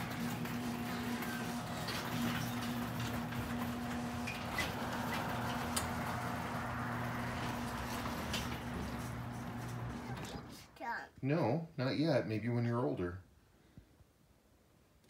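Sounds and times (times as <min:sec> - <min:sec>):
garage door rattling: 0:00.0 - 0:10.6
garage door opener motor hum: 0:00.0 - 0:10.8.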